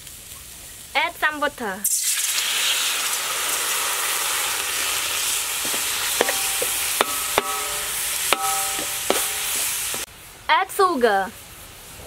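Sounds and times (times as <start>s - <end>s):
water sizzling in a hot wok: 0.0s - 12.0s
metal spatula clanking on wok: 5.6s - 10.0s.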